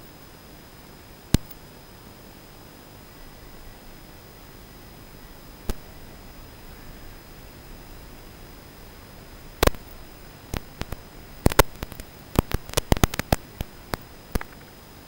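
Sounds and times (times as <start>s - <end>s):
radio static hiss with high whine: 0.0s - 15.0s
sharp crackling clicks: 1.3s - 1.7s, 5.6s - 6.0s, 8.9s - 14.8s.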